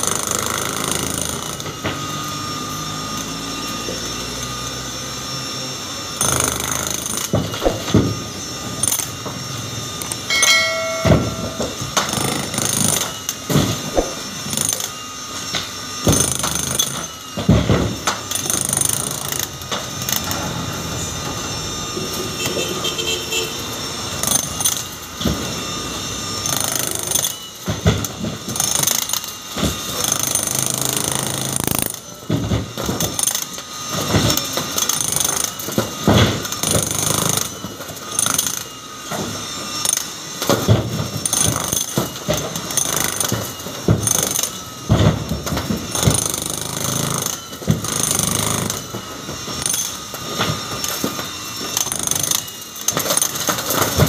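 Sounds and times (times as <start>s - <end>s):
jackhammer chiselling concrete: 0.0s - 1.8s, 6.2s - 8.2s, 8.8s - 13.2s, 13.8s - 14.9s, 16.0s - 17.1s, 18.2s - 20.4s, 24.2s - 24.9s, 26.4s - 27.4s, 28.5s - 38.7s, 41.2s - 45.0s, 45.8s - 48.9s, 49.5s - 50.0s, 51.7s - 54.0s.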